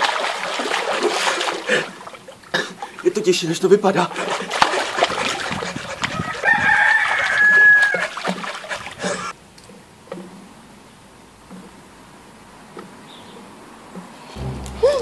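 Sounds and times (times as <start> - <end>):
water splashing: 0.0 - 9.3
rooster crowing: 6.2 - 8.2.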